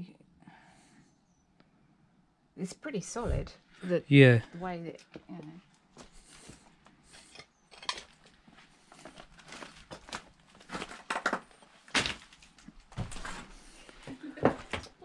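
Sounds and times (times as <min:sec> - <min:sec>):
debris crunching underfoot: 0:07.1 - 0:13.6.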